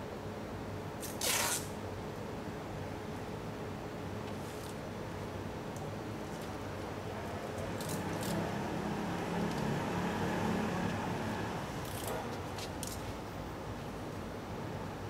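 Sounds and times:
street noise: 0.0 - 15.0
paper rustling against metal shutter: 1.0 - 1.7.

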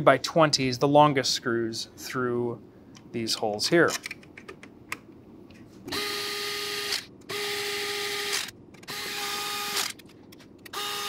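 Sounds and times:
electric screwdriver whining: 5.9 - 10.0, 10.7 - 11.0.

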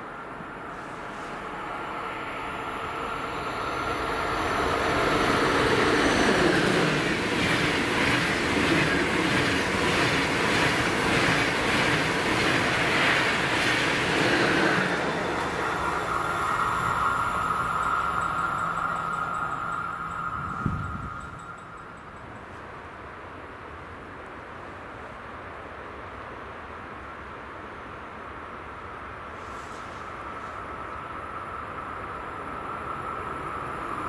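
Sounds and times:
train wheels rumbling on rails: 0.0 - 23.1.

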